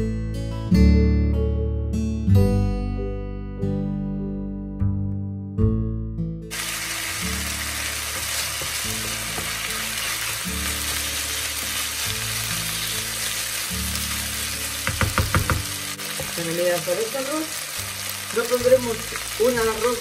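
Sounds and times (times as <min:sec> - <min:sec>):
acoustic guitar music: 0:00.0 - 0:20.0
rice sizzling in a pan: 0:06.5 - 0:20.0.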